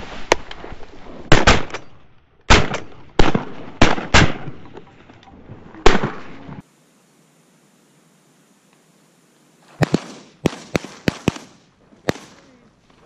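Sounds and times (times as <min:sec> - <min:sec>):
shotgun blasts: 0:01.3 - 0:01.9, 0:02.5 - 0:04.6, 0:05.8 - 0:06.4, 0:09.8 - 0:12.5.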